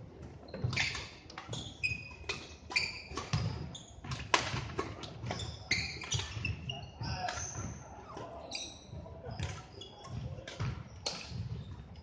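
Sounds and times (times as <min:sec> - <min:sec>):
shoes squeaking on floor: 0:00.2 - 0:12.0
racket hitting shuttlecock: 0:02.3 - 0:05.4, 0:10.4 - 0:11.6.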